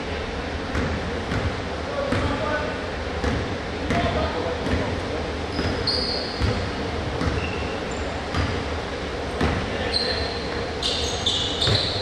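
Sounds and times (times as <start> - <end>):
basketball bouncing on gym floor: 0.7 - 2.5, 3.2 - 8.7, 9.3 - 10.6, 11.4 - 12.0
sneaker squeaks: 5.5 - 8.7, 9.3 - 12.0.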